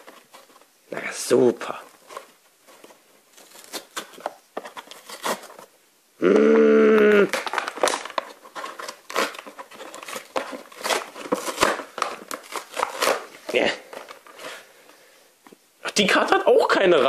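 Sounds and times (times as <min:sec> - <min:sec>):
plastic packaging crinkling: 0:01.3 - 0:05.8, 0:07.1 - 0:14.8.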